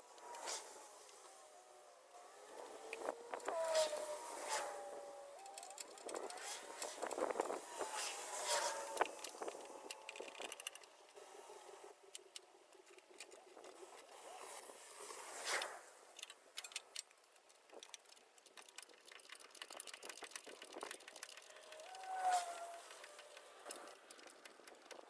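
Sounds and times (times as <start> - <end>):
faint clicks and knocks of hand work: 16.2 - 25.0.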